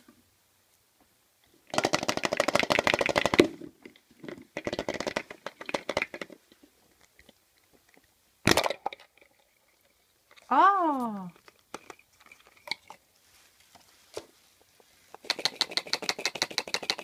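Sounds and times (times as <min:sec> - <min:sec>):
plastic toy egg creaking: 0:01.7 - 0:06.4, 0:15.2 - 0:17.0
plastic egg halves popping apart: 0:08.4 - 0:09.1.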